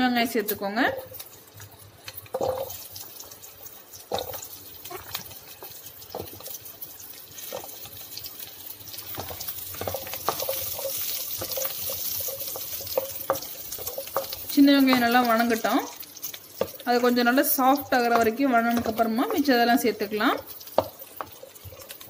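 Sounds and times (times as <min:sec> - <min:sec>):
onions sizzling in oil: 0:00.0 - 0:22.0
wooden spatula stirring: 0:01.3 - 0:22.0
onions dropping into pan: 0:02.0 - 0:03.4.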